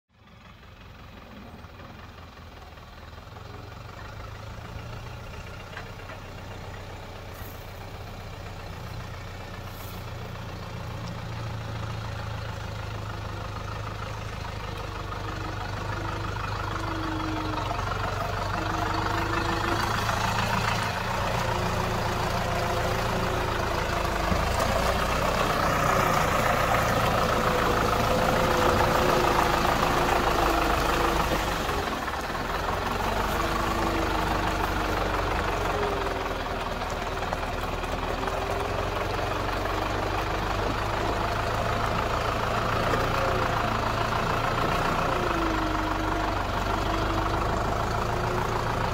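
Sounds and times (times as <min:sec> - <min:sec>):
tractor diesel engine running: 0:00.1 - 0:48.9.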